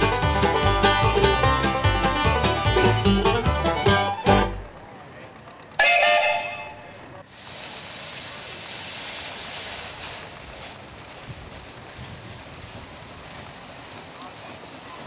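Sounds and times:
steam whistle blast: 5.8s - 7.0s
steady steam hiss: 6.9s - 15.0s.

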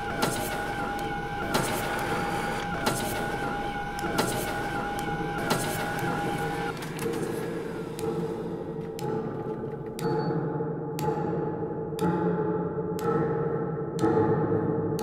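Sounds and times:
photocopier whine: 0.0s - 8.9s.

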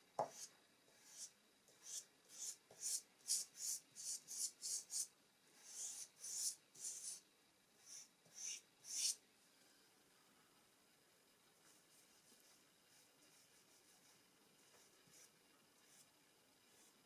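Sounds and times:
pastel stick rubbing on paper: 0.2s - 7.2s, 7.8s - 9.2s, 11.7s - 16.1s.

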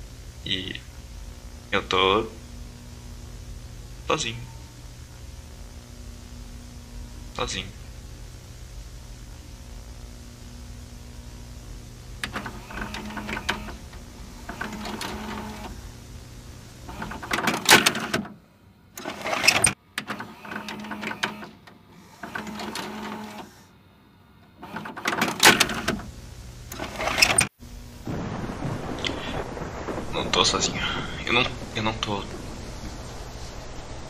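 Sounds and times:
electronic static and glitch noise: 0.0s - 18.4s.

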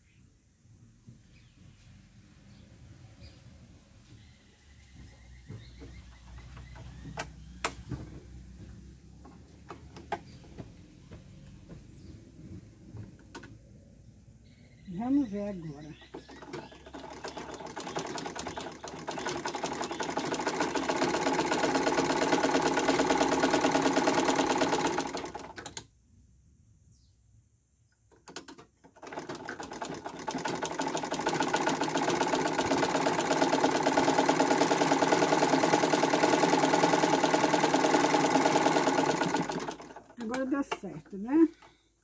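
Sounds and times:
sewing machine stitching: 15.3s - 25.8s, 28.2s - 41.0s.

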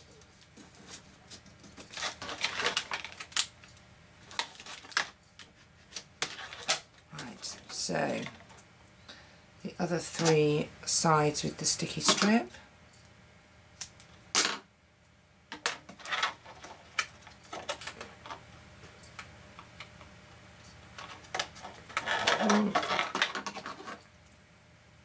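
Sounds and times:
plastic crinkling: 0.3s - 7.6s
plastic sheet clicks and crackles: 1.4s - 7.0s, 15.5s - 18.4s.

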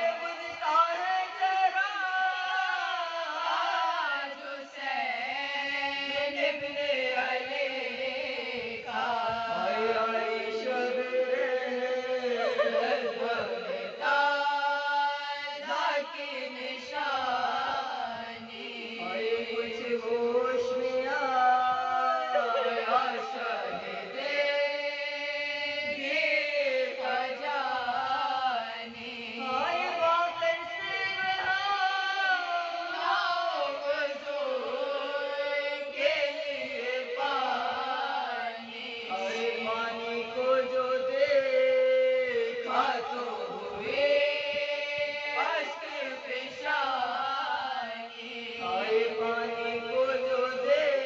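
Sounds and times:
women chanting unaccompanied: 5.4s - 35.8s, 36.7s - 40.6s
women chanting: 8.5s - 14.8s, 17.2s - 24.6s.

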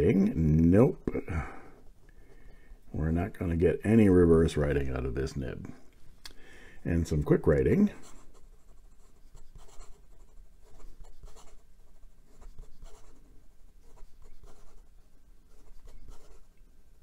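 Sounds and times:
pen nib scratching paper: 8.0s - 16.5s.

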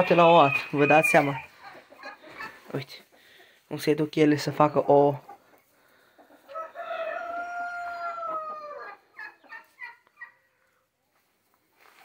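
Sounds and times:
rooster crowing: 0.0s - 1.4s, 6.5s - 9.0s.

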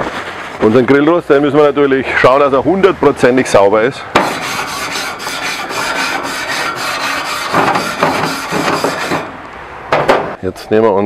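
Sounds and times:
grill brush scrubbing grate: 4.2s - 9.4s.

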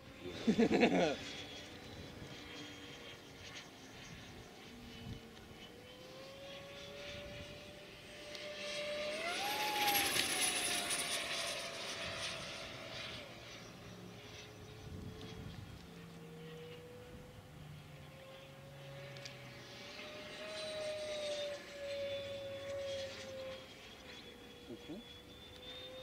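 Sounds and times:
model jet fan whining: 0.0s - 26.0s.

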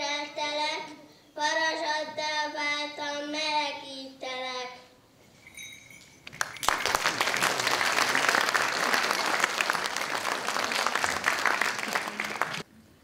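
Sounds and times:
audience applauding: 6.3s - 12.7s.

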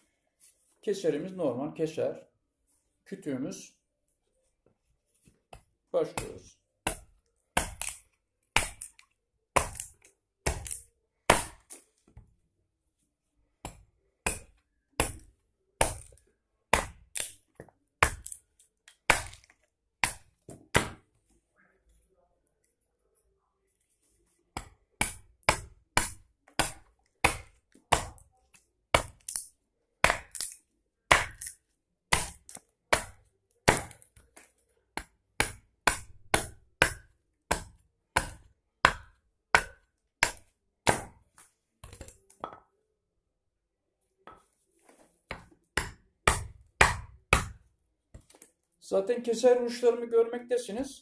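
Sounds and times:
adze chopping wood: 6.2s - 11.8s, 13.6s - 18.4s, 19.0s - 21.1s, 24.6s - 28.3s, 28.9s - 34.1s, 35.0s - 41.2s, 45.3s - 47.6s.

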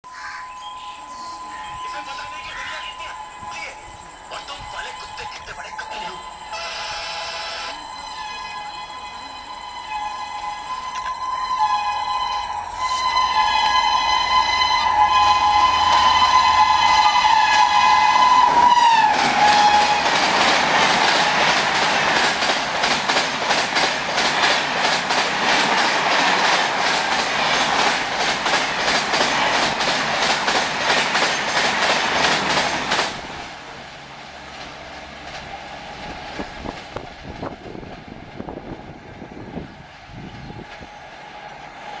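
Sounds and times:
train horn honking: 0.4s - 22.2s
train wheels clattering over rail joints: 19.2s - 33.4s.

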